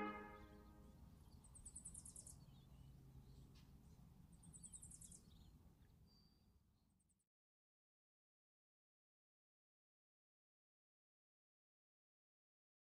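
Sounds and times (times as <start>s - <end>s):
small bird high trills: 0.0s - 0.5s.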